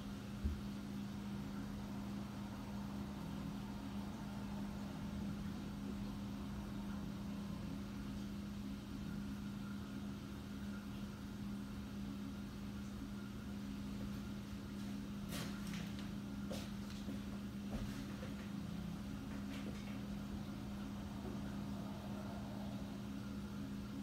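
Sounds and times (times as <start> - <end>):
constant low hum: 0.0 - 24.0
muffled cars passing: 20.6 - 23.2.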